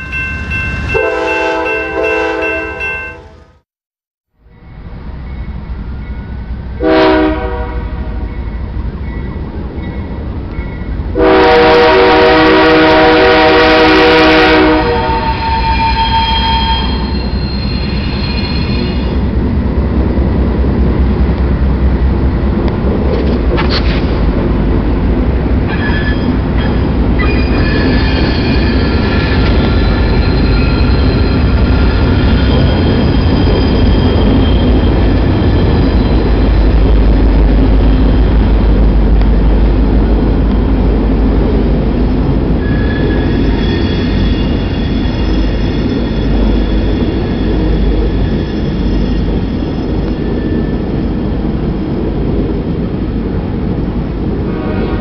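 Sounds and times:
diesel locomotives rumbling: 0.0s - 3.6s, 4.4s - 55.0s
locomotive air horn blast: 1.0s - 3.6s, 6.8s - 8.2s, 11.2s - 16.0s, 54.4s - 55.0s
steel wheels squealing on rails: 14.8s - 19.4s, 25.6s - 37.0s, 42.4s - 51.5s.

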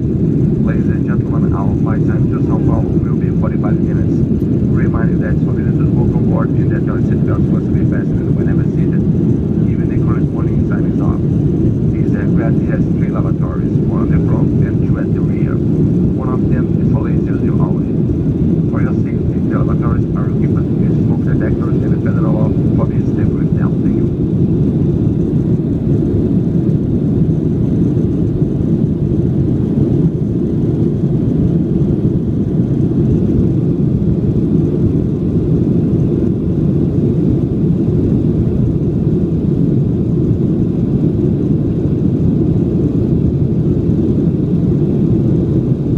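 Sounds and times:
jet engines roaring: 0.0s - 45.9s.

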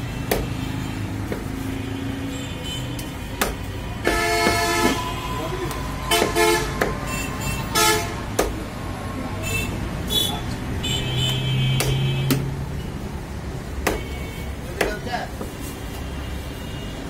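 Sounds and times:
street traffic: 0.0s - 17.0s
vehicle horn tooting: 3.9s - 8.2s, 9.4s - 12.4s
longer pitched horn: 4.0s - 8.2s
knife chopping into wooden block: 8.4s - 8.6s.

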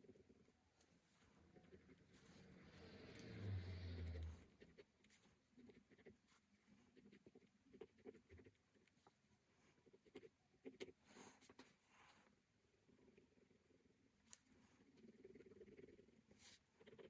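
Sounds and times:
ballpoint pen scratching on paper: 0.0s - 12.2s, 14.3s - 17.0s.

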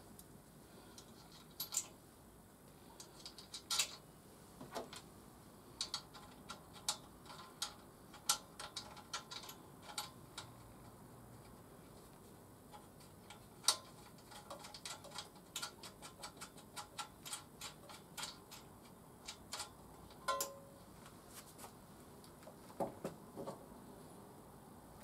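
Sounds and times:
hand tools clicking on metal: 5.8s - 11.5s, 12.7s - 20.6s
metallic ring: 20.2s - 20.8s.

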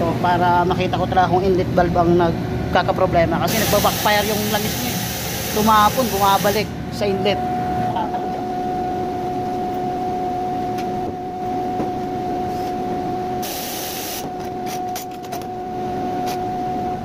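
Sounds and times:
air compressor humming and whining: 0.0s - 17.0s
loud burst of hissing air: 3.5s - 6.7s, 13.4s - 14.3s.

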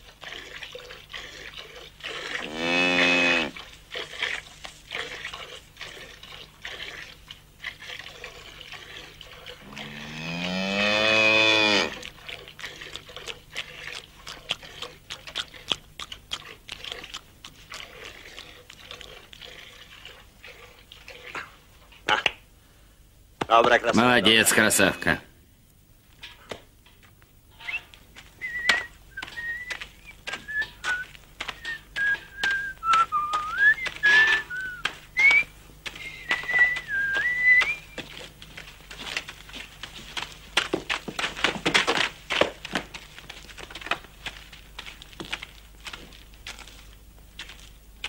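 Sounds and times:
cow mooing: 2.4s - 3.6s, 9.6s - 12.0s
milk squirting into pail: 11.9s - 21.6s.

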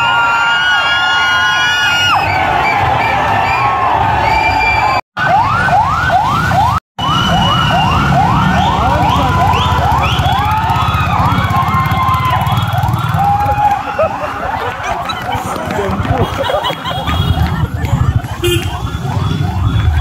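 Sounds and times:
siren yelping: 4.3s - 20.0s
low crowd rumble: 13.2s - 20.0s.

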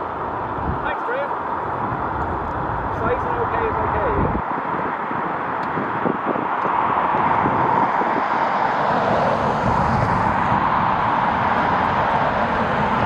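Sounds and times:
jet engines rushing: 0.1s - 13.0s.

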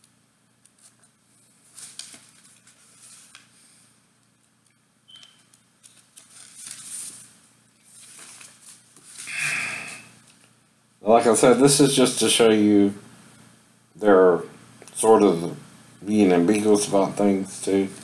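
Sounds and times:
paper pages rustling: 0.6s - 3.9s, 5.4s - 9.3s.

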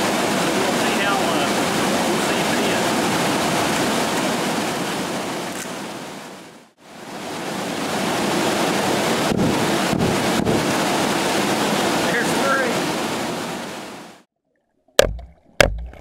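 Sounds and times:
waterfall and river rushing: 0.0s - 14.3s
dull low gunshot thumps underwater: 9.3s - 10.7s, 14.9s - 16.0s.

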